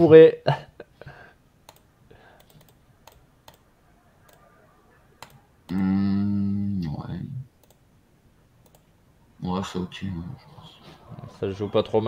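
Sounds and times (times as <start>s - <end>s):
computer mouse clicks: 1.6s - 4.4s, 5.2s - 5.8s, 7.6s - 7.8s, 8.6s - 8.9s
man's long hesitation sound: 3.6s - 6.9s, 9.4s - 12.0s.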